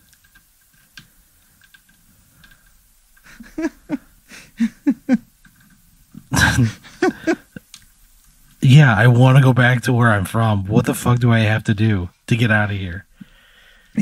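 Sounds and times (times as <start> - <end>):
loud breathy outburst: 2.7 - 4.8, 13.2 - 14.0
high whimpering: 3.3 - 5.3.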